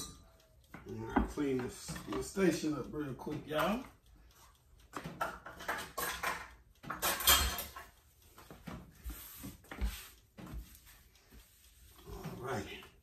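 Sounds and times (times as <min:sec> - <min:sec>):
dishes and utensils clattering: 0:05.2 - 0:07.9.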